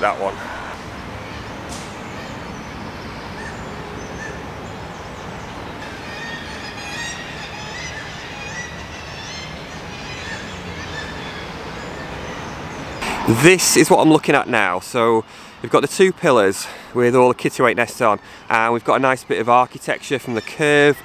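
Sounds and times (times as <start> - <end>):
seabirds shrill calls: 2.1 - 12.8.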